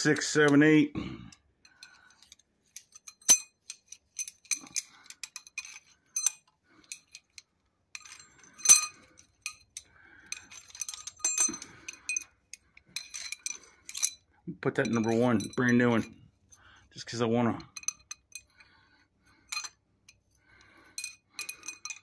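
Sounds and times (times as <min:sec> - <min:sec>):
metal pushrods clinking: 0:01.6 - 0:18.7, 0:19.4 - 0:22.0.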